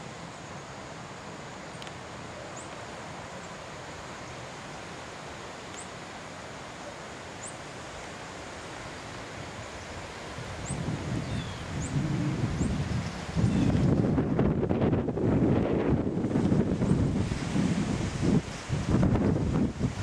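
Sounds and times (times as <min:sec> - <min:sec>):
wind: 0:00.0 - 0:20.0.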